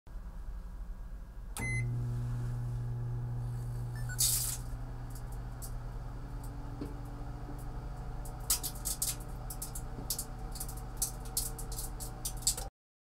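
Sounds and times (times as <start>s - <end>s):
short beep: 1.6s - 1.9s, 3.9s - 4.3s
microwave switch click: 1.6s - 2.0s
microwave humming: 1.6s - 12.7s
crackle of sparks: 3.5s - 6.6s, 7.6s - 12.7s.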